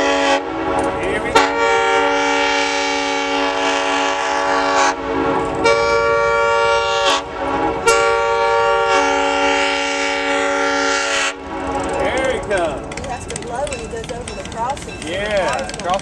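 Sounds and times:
locomotive air horn blasts: 0.0s - 12.1s.

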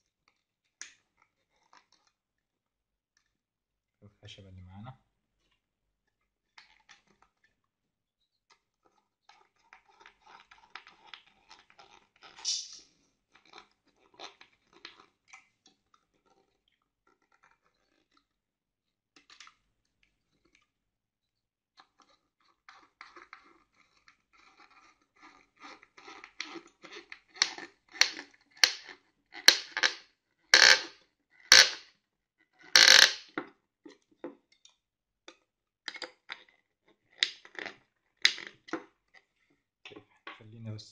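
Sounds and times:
screwdriver creaking into wood: 29.4s - 30.0s, 30.6s - 30.9s, 31.5s - 31.8s, 32.7s - 33.3s.

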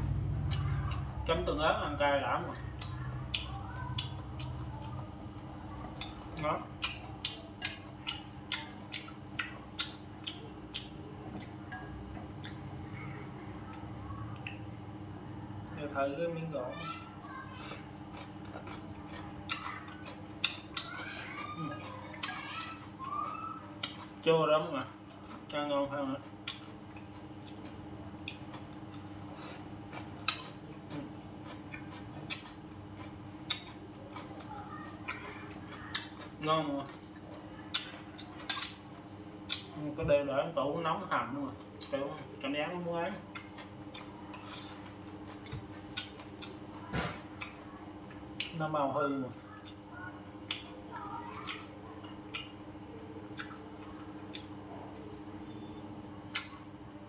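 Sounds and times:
steady low hum: 0.0s - 57.0s
person chewing with lip smacks: 2.5s - 12.7s, 13.6s - 15.8s, 17.5s - 24.2s, 26.2s - 39.8s, 41.6s - 42.4s, 43.0s - 47.7s, 48.3s - 48.6s, 49.4s - 52.6s, 53.2s - 55.2s, 56.3s - 56.7s.

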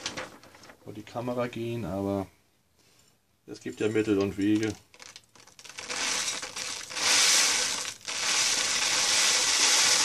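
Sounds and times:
dry flakes pouring into glass jar: 4.9s - 10.0s.

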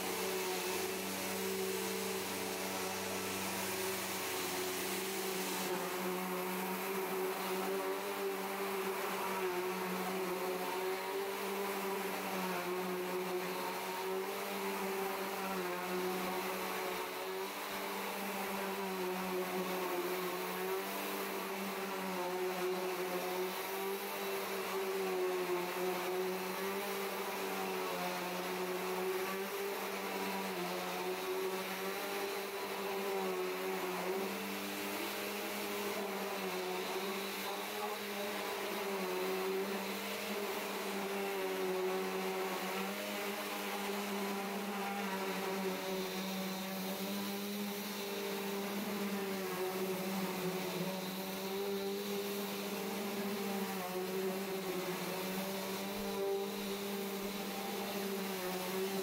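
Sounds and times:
upright vacuum cleaner running: 0.0s - 59.0s.

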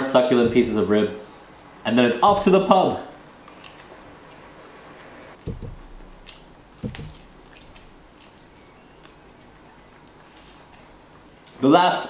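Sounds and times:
dull thumps: 0.3s - 1.5s, 2.2s - 3.0s, 5.3s - 9.4s.

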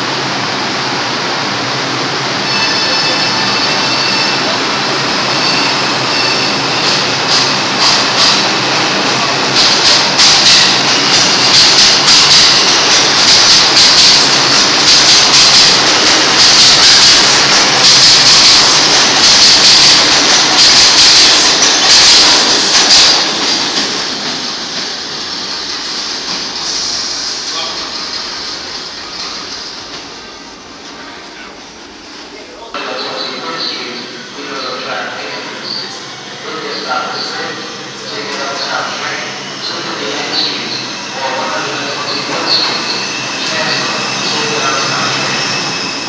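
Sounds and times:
subway train wheels rumbling: 0.0s - 46.0s
train wheels clicking and clacking: 5.2s - 30.3s, 40.1s - 46.0s.

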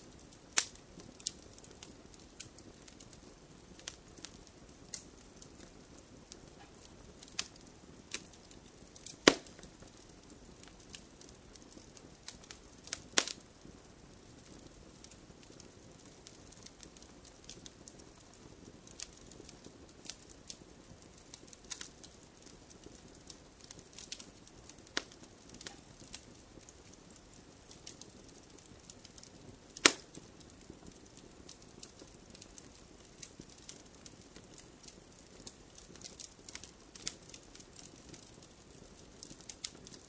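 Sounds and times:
wood fire crackling: 0.0s - 40.0s
loud pop of fire: 9.0s - 10.8s, 11.7s - 13.4s, 29.7s - 30.3s.

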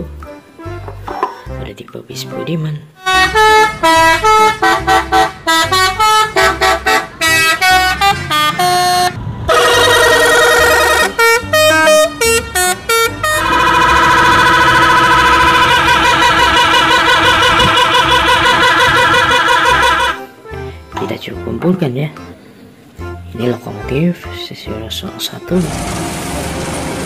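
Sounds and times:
musical air horns: 3.0s - 20.8s.

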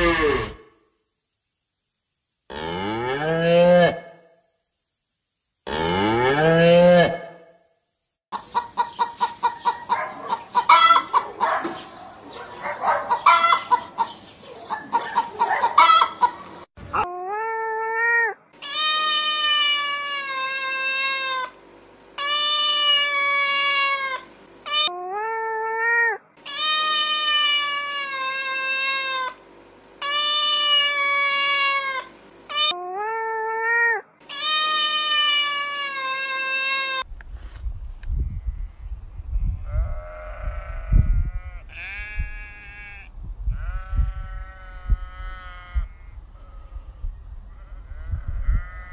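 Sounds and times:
cow mooing: 0.0s - 0.6s, 5.7s - 7.4s
chickens clucking: 8.3s - 16.7s.

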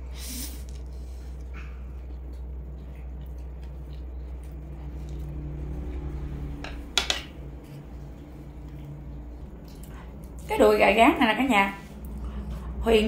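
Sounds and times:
low hum: 0.0s - 13.0s
chewing noodles: 0.6s - 6.4s, 7.6s - 10.5s
chopsticks clattering on a plate: 6.7s - 7.3s.

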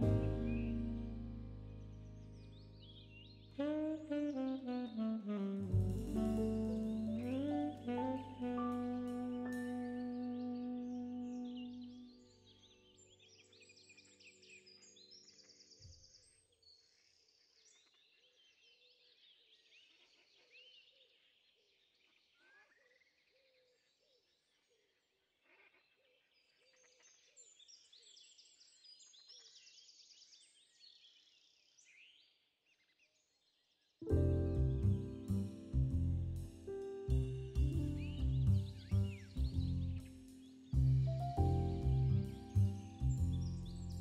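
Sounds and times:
background music: 0.0s - 13.0s, 34.1s - 44.0s
birds chirping and trilling: 0.0s - 17.8s, 34.1s - 44.0s.

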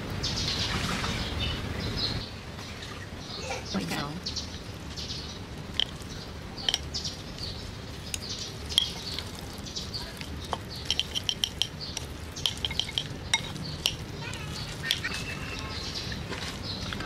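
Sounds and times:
chopsticks clicking in ceramic bowl: 10.2s - 14.0s.

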